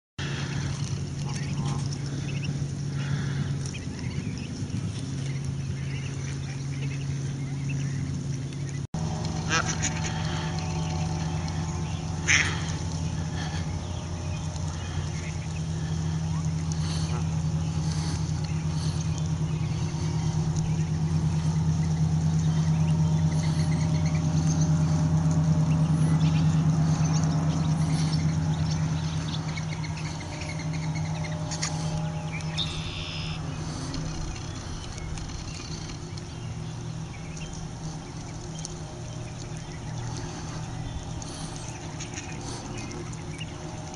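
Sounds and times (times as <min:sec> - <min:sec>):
ducklings peeping: 0:00.2 - 0:43.9
low hum: 0:00.2 - 0:43.9
duck calls: 0:09.2 - 0:22.2.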